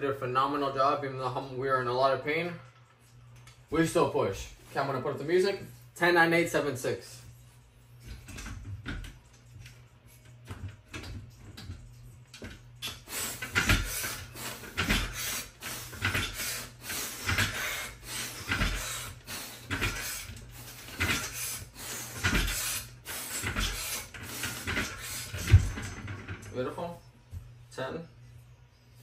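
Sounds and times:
effortful breaths: 0:12.8 - 0:25.6.

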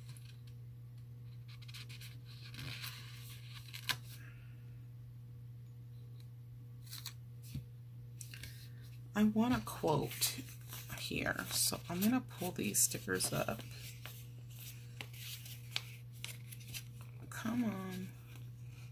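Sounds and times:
steady low hum: 0:00.0 - 0:18.9
paper rustling: 0:09.5 - 0:18.9.

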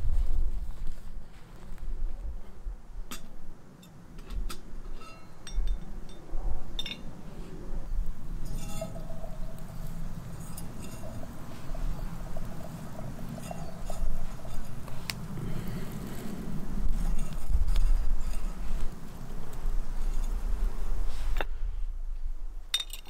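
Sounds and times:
footsteps through grass: 0:00.0 - 0:02.1.

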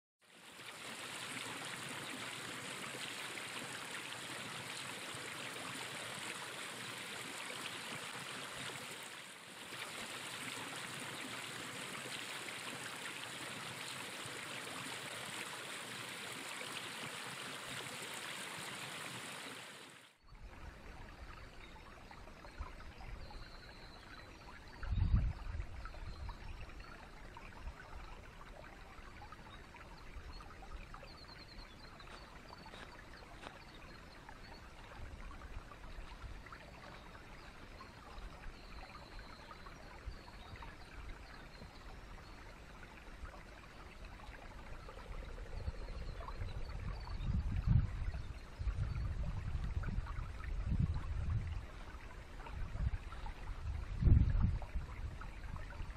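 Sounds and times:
water babbling: 0:00.2 - 0:55.9
creek water rushing: 0:00.3 - 0:22.6.

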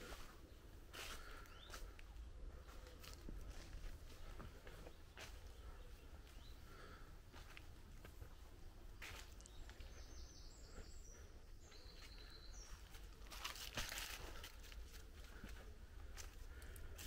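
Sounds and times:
footsteps crunching on debris: 0:12.6 - 0:17.0.

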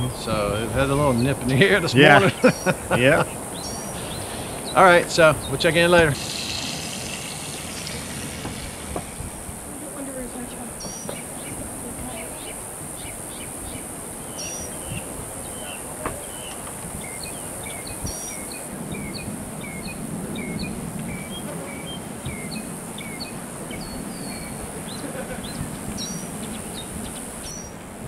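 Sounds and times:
small birds chirping: 0:00.0 - 0:27.8
steady hiss: 0:00.0 - 0:28.0
sharp knocks: 0:06.0 - 0:09.5.

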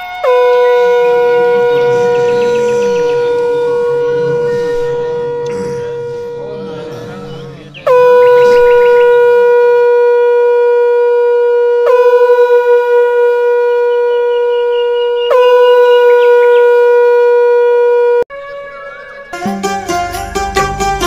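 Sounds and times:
conch shell blasts: 0:00.0 - 0:14.0.

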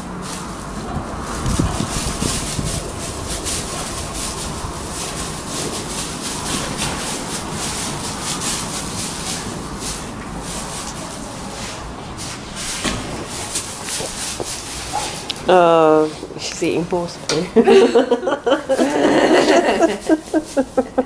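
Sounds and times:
straw bedding rustling: 0:00.0 - 0:17.1, 0:18.7 - 0:21.0
heavy thump: 0:12.8 - 0:13.5.

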